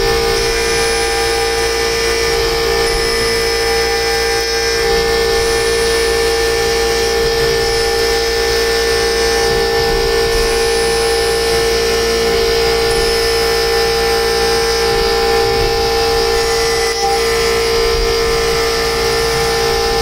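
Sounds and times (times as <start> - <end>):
high-pitched router cutting whine: 0.0 - 20.0.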